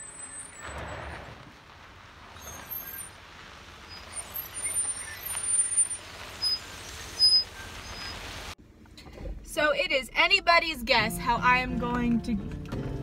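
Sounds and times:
tyres crunching on gravel: 0.0 - 8.6
brakes squealing: 0.0 - 10.7
low car engine: 0.0 - 13.0.

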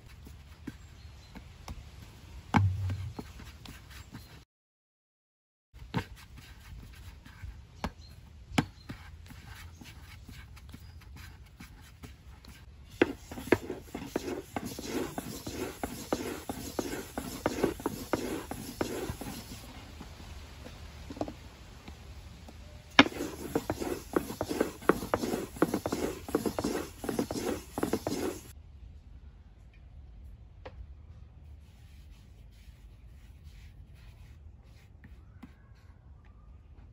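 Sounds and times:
sharp knock: 2.6 - 3.3
rolling pin rolling dough on board: 13.0 - 19.7, 23.0 - 28.5.

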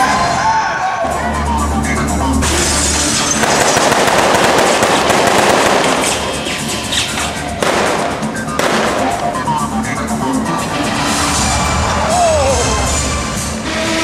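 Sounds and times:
machine gun firing blanks: 3.4 - 6.6.

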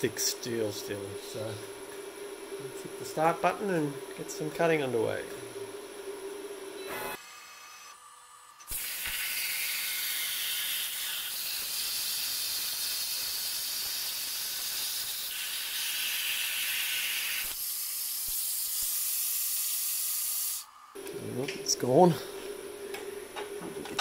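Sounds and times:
plasma torch cutting hiss: 8.6 - 20.7.

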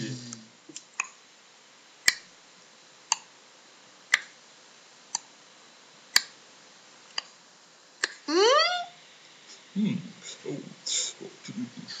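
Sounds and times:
wall clock ticking: 4.1 - 4.3, 6.1 - 6.3.

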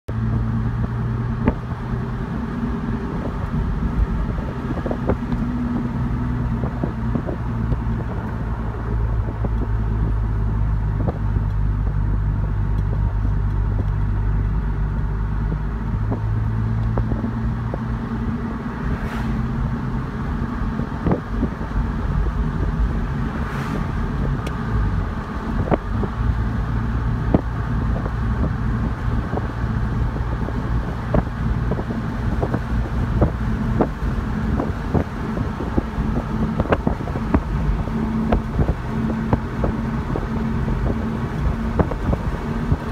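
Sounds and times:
car engine hum and road noise: 0.0 - 42.9
brief rushing swells: 18.7 - 19.6.

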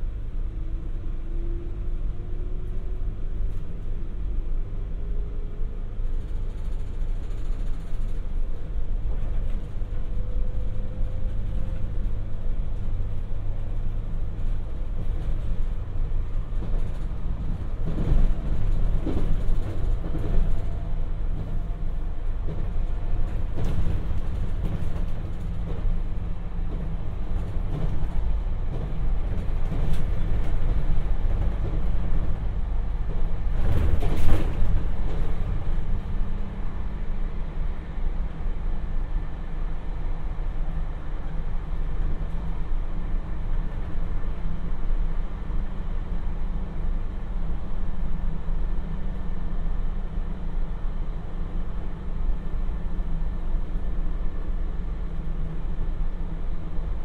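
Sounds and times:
train wheels rumbling: 0.0 - 57.0
sharp knocks from train: 33.1 - 35.8.

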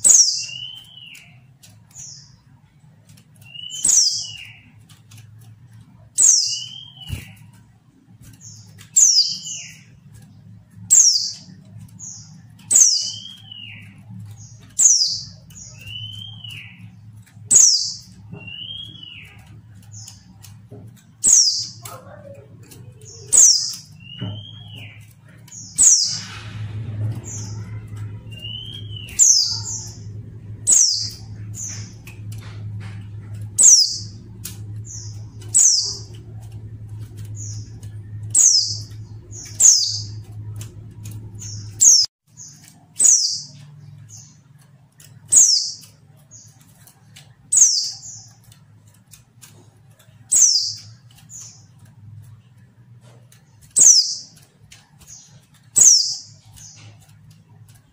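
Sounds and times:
bird calling high slurred notes: 0.0 - 2.8, 3.4 - 7.6, 8.4 - 44.3.

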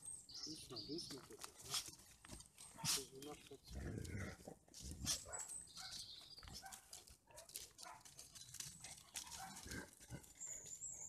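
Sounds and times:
paws scuffling on dry leaves: 1.1 - 3.7, 4.8 - 11.0
puppies growling and grunting: 3.7 - 5.1.

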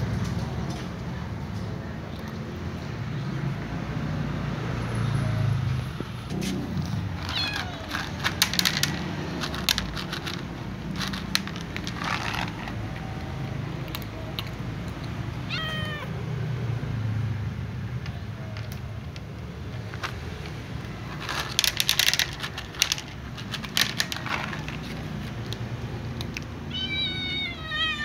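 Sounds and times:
cat meowing: 7.2 - 8.2, 15.3 - 16.3, 26.6 - 28.0.

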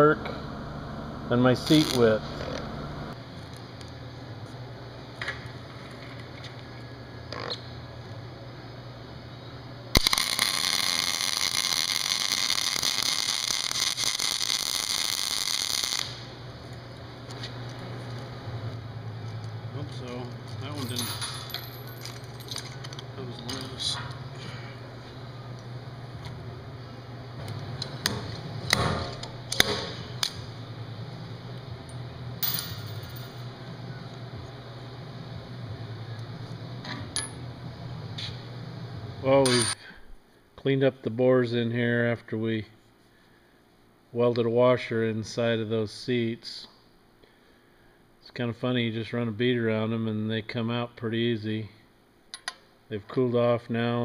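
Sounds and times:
welding arc crackling: 0.0 - 4.0, 9.9 - 20.9
high metallic ring: 32.4 - 33.5.

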